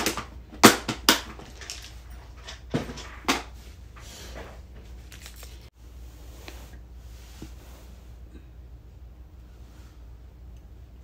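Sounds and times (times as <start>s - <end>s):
faint low hum: 1.4s - 11.0s
soft rustling and shuffling: 3.5s - 8.3s.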